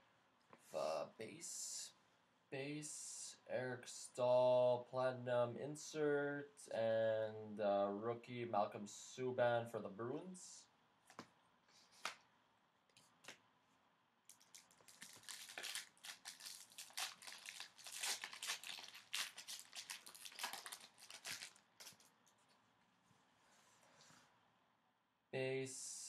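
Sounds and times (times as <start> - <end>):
foil wrapper tearing and crinkling: 14.3 - 22.1.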